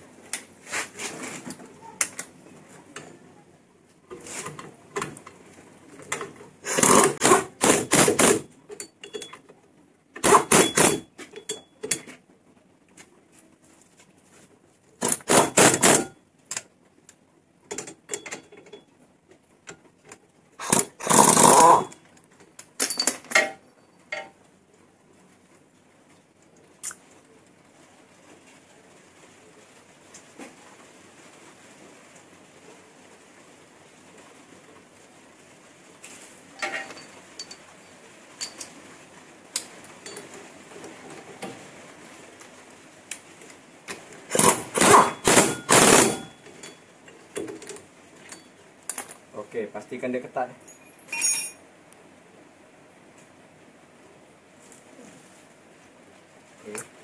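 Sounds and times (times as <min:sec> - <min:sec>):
power tool driving bolts: 0:06.6 - 0:08.5, 0:10.2 - 0:11.1, 0:15.0 - 0:16.1, 0:20.6 - 0:21.9, 0:44.3 - 0:46.3.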